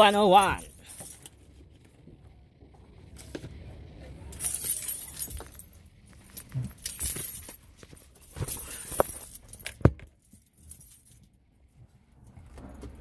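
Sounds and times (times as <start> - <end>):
keys jingling: 0.0 - 1.4, 4.3 - 11.4.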